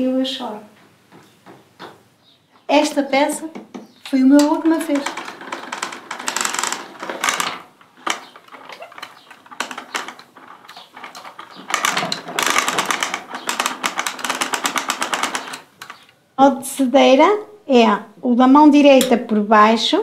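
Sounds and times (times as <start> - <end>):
hand-cranked winder whirring rattle: 4.1 - 16.1.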